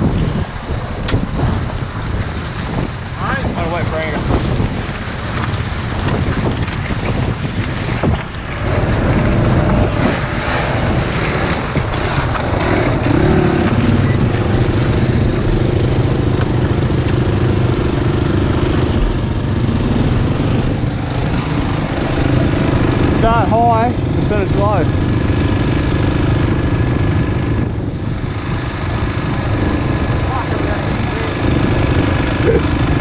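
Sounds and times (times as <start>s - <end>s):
off-road engines running: 0.0s - 33.0s
wind buffeting microphone: 0.0s - 33.0s.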